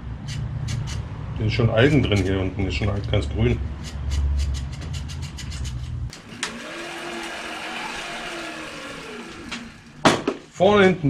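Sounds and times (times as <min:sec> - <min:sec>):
rag rubbing spinning bicycle tyre: 0:03.8 - 0:10.1
bicycle wheel spinning freely: 0:06.2 - 0:10.1.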